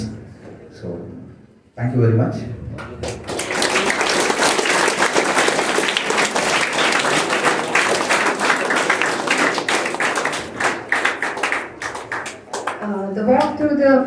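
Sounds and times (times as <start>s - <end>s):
audience applauding: 3.0s - 13.1s.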